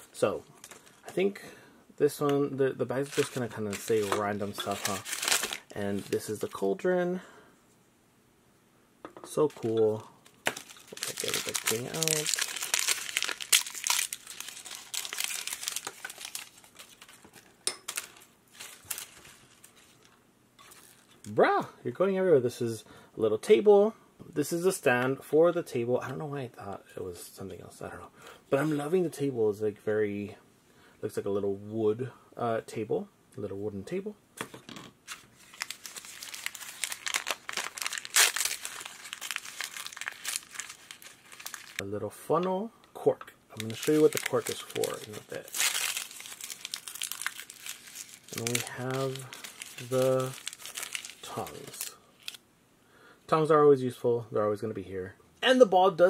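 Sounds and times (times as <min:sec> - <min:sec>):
paper wrapper crinkling and tearing: 0:00.6 - 0:01.1, 0:02.9 - 0:06.7, 0:10.3 - 0:21.3, 0:35.1 - 0:41.8, 0:43.6 - 0:52.4.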